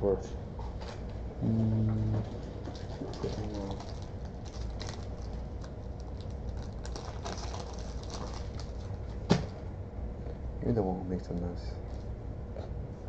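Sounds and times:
card packs rustling: 2.8 - 9.2.

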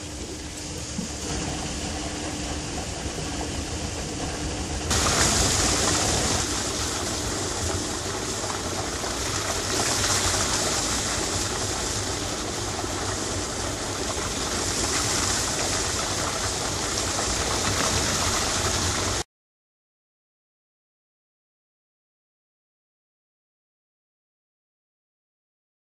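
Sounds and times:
water rushing through screen: 0.0 - 19.2.

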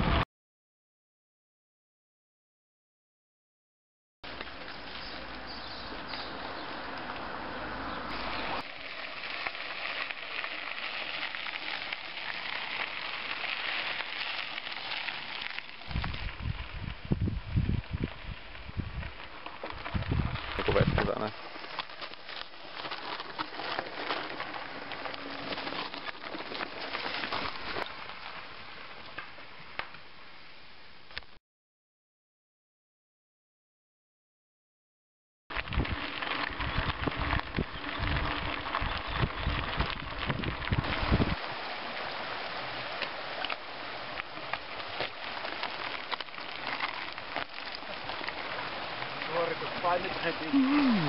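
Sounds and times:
stream trickling and splashing: 4.2 - 29.4, 35.7 - 51.0
bike tyres crunching over gravel: 4.2 - 30.2, 35.5 - 51.0.

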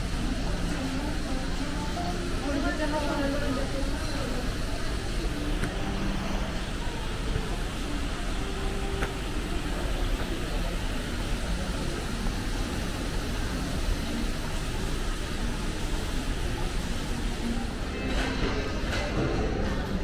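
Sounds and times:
faint distant voices: 0.0 - 20.0
indoor hall background noise: 0.0 - 20.0.

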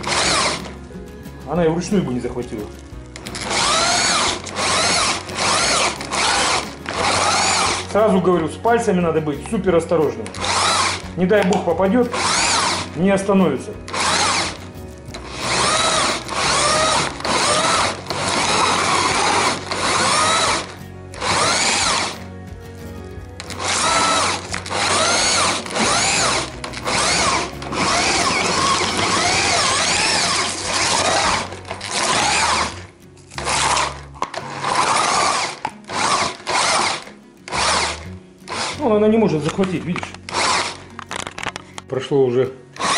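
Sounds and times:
electric drill motor whine: 0.0 - 0.8, 3.3 - 7.9, 10.4 - 11.0, 12.1 - 12.9, 13.9 - 22.2, 23.4 - 38.8, 40.3 - 40.8.

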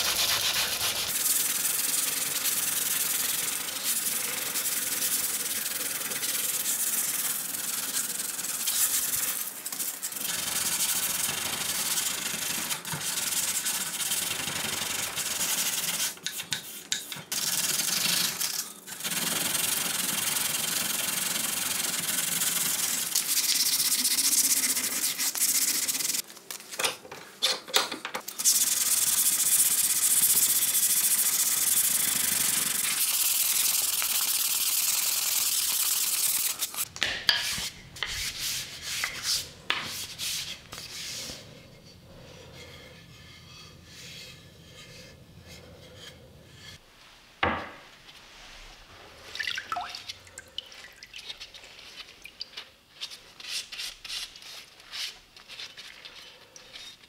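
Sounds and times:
sandpaper rubbing on wood: 0.0 - 18.3, 19.1 - 26.2, 28.4 - 41.6, 53.0 - 56.9.

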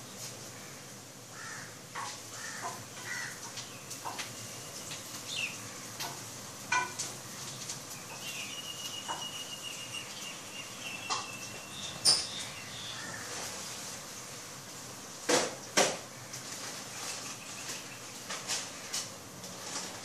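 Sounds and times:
birds chirping: 2.4 - 6.0, 7.2 - 14.4, 16.1 - 19.0.

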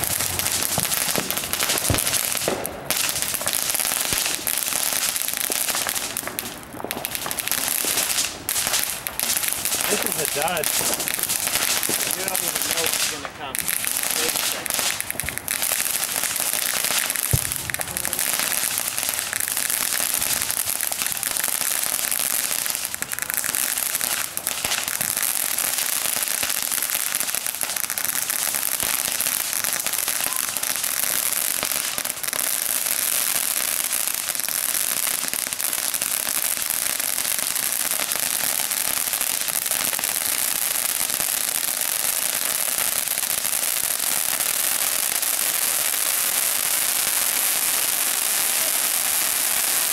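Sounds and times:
sharp firework pop: 0.0 - 3.1, 17.0 - 18.3
firework hissing and crackling: 0.0 - 49.9.

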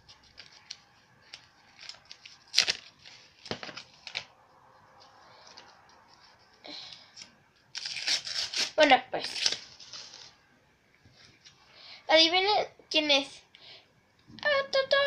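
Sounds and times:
plastic packaging clicks and rustles: 0.0 - 4.4
soft plastic crinkle: 0.0 - 10.4.

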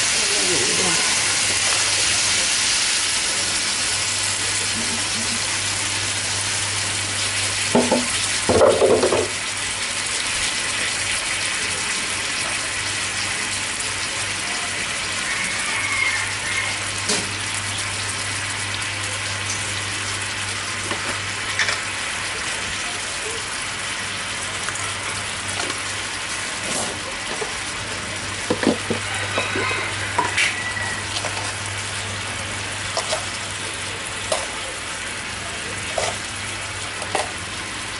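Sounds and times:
chicken sizzling in a frying pan: 0.0 - 37.9.

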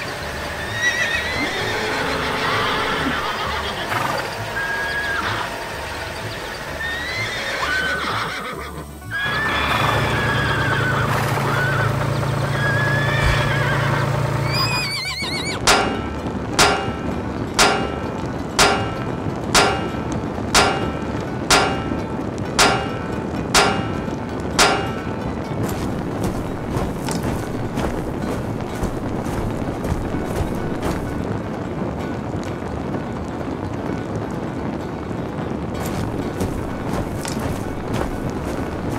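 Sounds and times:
horse whinnying: 0.6 - 5.5, 6.8 - 11.9, 12.5 - 15.6
hammer clanging on anvil: 15.6 - 31.3, 35.8 - 38.9
low hum: 15.6 - 31.5.

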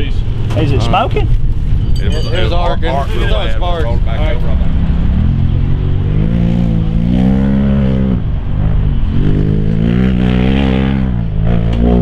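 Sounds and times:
engine revving: 4.1 - 12.0.

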